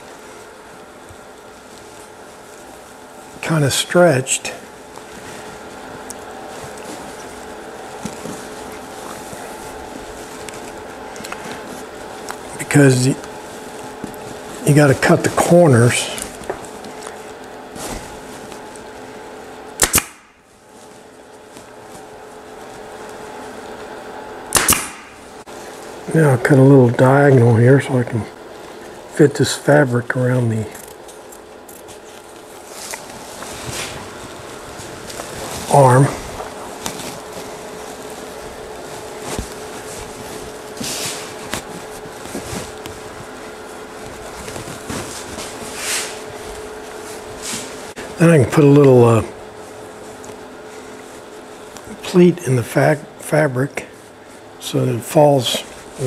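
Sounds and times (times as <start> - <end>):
upholstery fabric rustling: 0.0 - 3.5, 4.6 - 19.8, 20.4 - 24.1, 31.0 - 48.2, 55.6 - 56.0
steady low hum: 0.0 - 56.0
staple gun firing: 19.8 - 20.3, 24.5 - 25.1.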